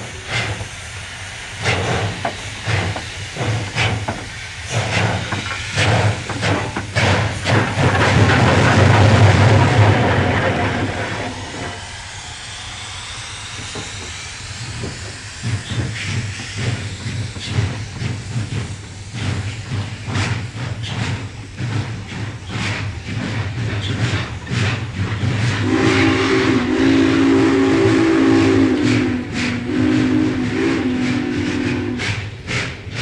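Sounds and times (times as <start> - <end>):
steam hissing: 0.0 - 33.0
steam locomotive exhaust beats: 0.0 - 33.0
steam whistle: 25.4 - 32.3.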